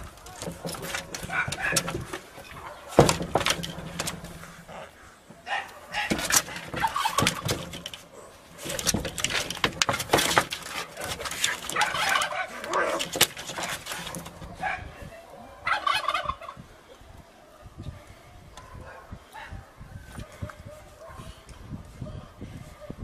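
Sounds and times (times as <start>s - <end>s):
claws scrabbling on metal roof: 0.0s - 15.0s.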